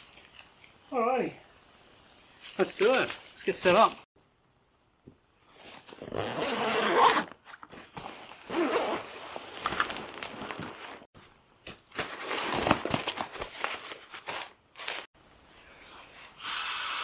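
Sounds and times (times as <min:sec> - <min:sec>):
fabric and gear rustling: 0:05.4 - 0:11.2
zipper rasping open: 0:05.8 - 0:07.4, 0:08.4 - 0:09.6.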